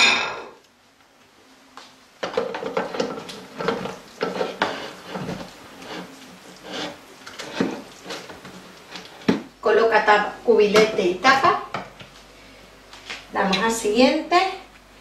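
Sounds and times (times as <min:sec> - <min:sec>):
spatula scraping a metal basket: 0:02.7 - 0:09.3.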